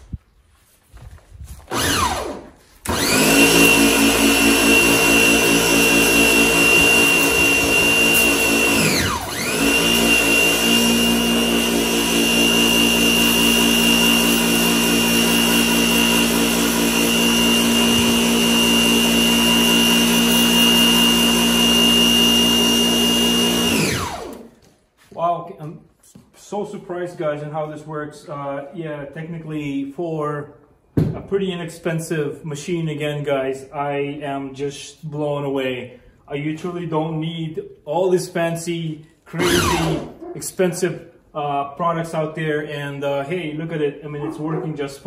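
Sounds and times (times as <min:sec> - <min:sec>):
pressure washer motor whine: 0:01.7 - 0:24.6, 0:39.4 - 0:40.2.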